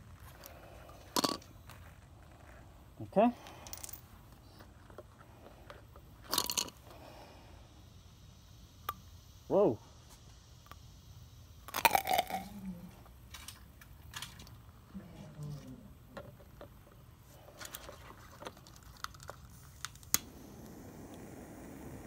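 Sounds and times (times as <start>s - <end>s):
sharp pops and ticks: 8.8s - 9.2s, 10.2s - 10.9s, 18.4s - 22.0s.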